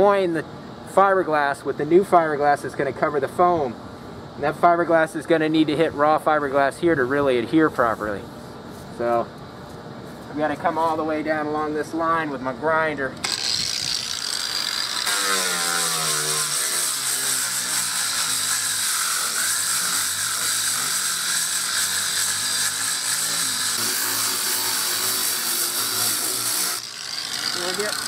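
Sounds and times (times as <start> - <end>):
angle grinder sanding: 13.2 - 28.0.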